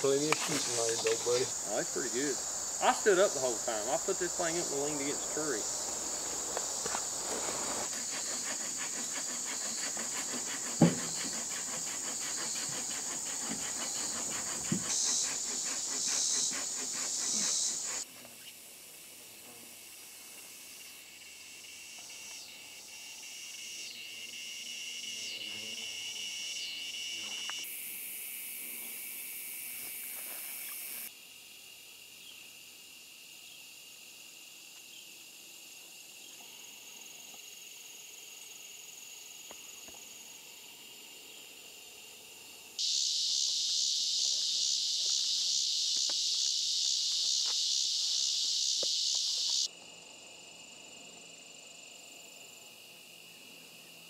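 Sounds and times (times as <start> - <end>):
high hiss: 0.0 - 20.9, 42.8 - 49.7
crickets and insects trilling: 0.0 - 54.0.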